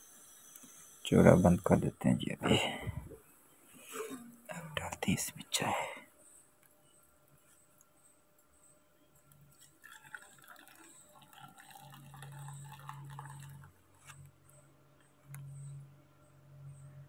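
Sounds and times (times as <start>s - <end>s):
low steady hum: 0.0s - 17.0s
tea pouring through strainer: 9.2s - 14.3s.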